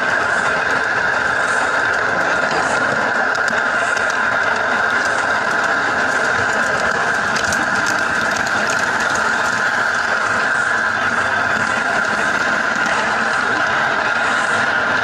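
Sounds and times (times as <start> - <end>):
small locomotive humming: 0.0 - 15.0
wheels running on track: 0.0 - 15.0.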